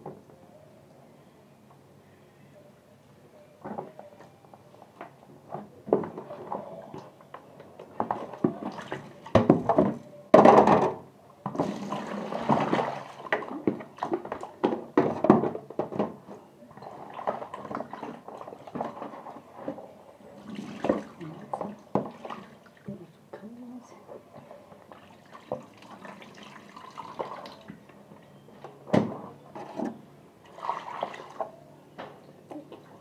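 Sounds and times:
water splashing in a basin: 11.5 - 14.5, 20.4 - 23.0, 24.9 - 27.7, 30.4 - 31.5.

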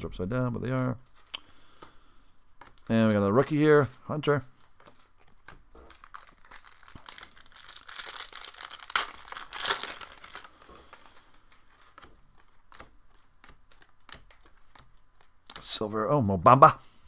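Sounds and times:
foil wrapper tearing and crinkling: 5.9 - 11.3.

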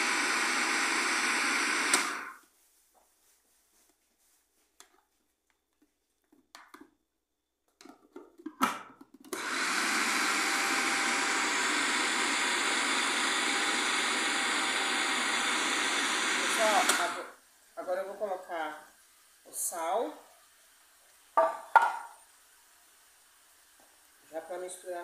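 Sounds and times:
food processor running: 0.0 - 2.4, 9.3 - 17.4.

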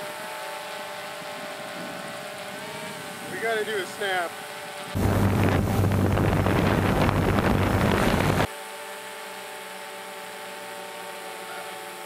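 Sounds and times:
drone propellers whining: 0.0 - 8.5.

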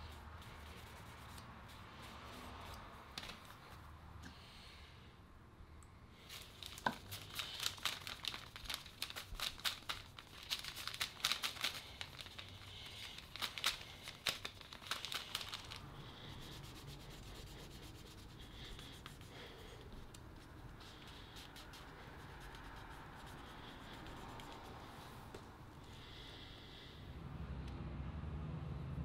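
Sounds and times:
hand rubbing on wood: 0.0 - 3.0, 14.0 - 25.3.

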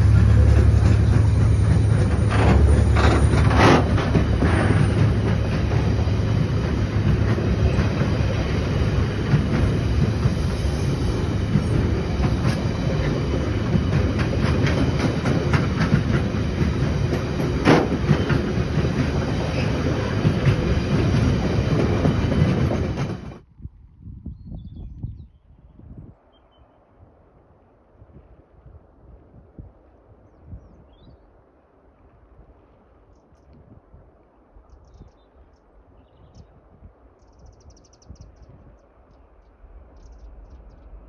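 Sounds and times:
train wagon clicks and knocks: 0.0 - 10.6, 11.4 - 23.4
train wagon clank: 0.0 - 23.4
freight train wheels rumbling on rail: 0.0 - 23.5.

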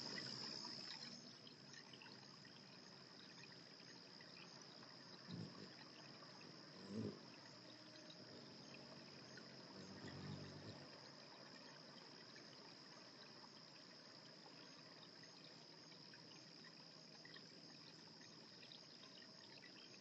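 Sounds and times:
high-pitched insect trill: 0.0 - 20.0
low hiss: 0.0 - 20.0.

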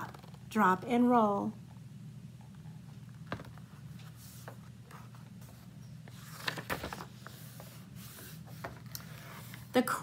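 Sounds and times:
low room hum: 0.0 - 10.0
book pages rustling: 3.1 - 9.8.

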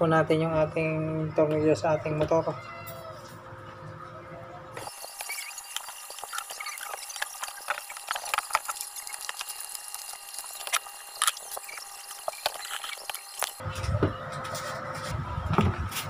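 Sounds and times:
squeaky scrapes: 4.8 - 16.0.

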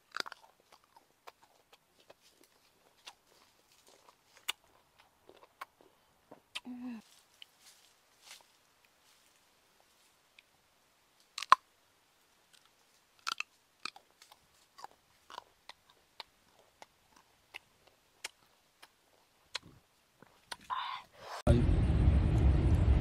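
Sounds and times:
person crunching fruit: 0.0 - 8.5, 11.2 - 11.7, 12.5 - 20.7.

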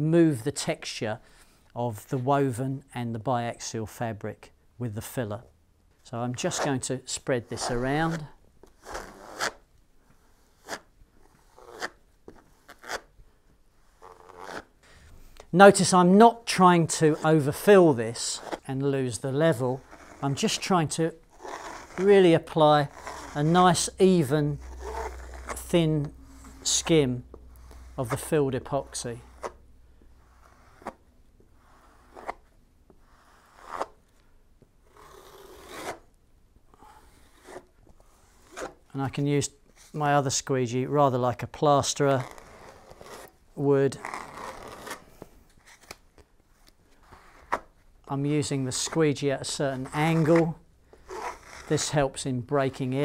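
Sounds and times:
plastic squeegee scraping epoxy: 19.5 - 29.6, 48.7 - 52.0.

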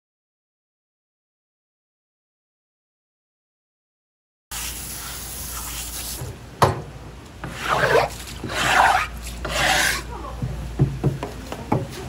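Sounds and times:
cutting board scraped and wiped: 7.4 - 10.1.

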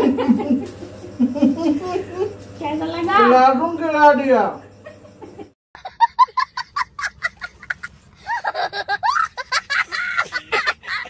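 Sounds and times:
child laughing hysterically: 5.8 - 11.0.

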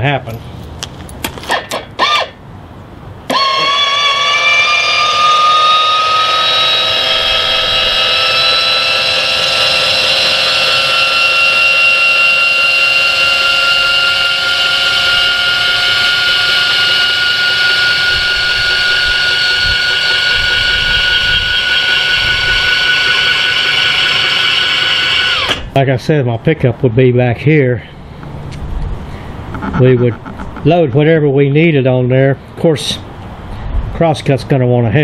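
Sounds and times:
actuator motor whine: 1.5 - 2.4, 3.2 - 25.7.

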